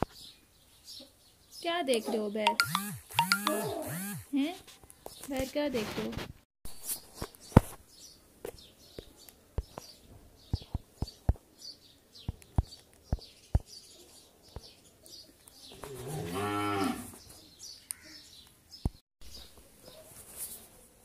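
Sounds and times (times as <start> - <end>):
cow mooing: 3.5 - 3.9, 15.8 - 17.1.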